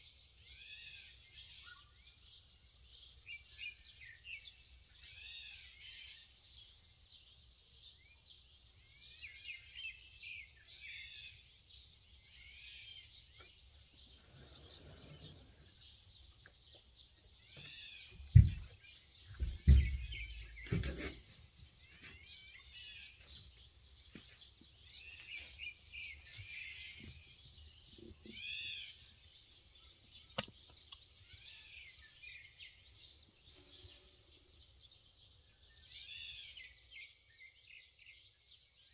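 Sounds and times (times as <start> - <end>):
wild birds chirping: 0.0 - 38.9
knocks: 18.2 - 18.7, 19.3 - 21.2
sharp click: 30.4 - 31.0.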